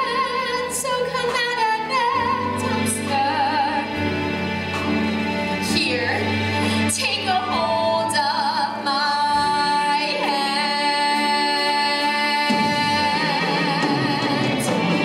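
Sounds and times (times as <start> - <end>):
woman singing: 0.0 - 4.4, 5.6 - 15.0
instrumental accompaniment: 0.0 - 15.0.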